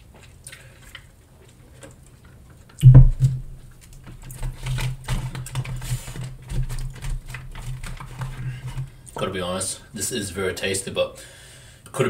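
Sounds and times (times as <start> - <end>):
cup thumping on table: 2.8 - 3.6
plastic fork scraping foil tray: 4.2 - 9.4.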